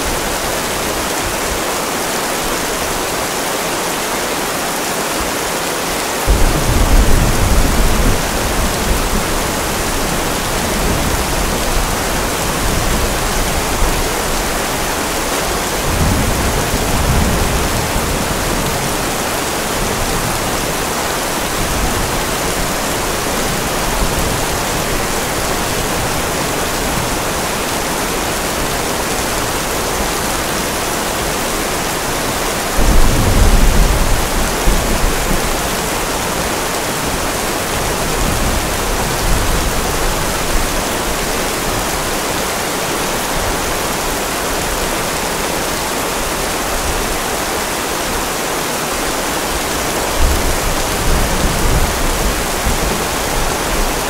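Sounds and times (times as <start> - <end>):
steady rain hiss: 0.0 - 54.0
thunder rumbling: 6.3 - 27.5, 32.7 - 41.2.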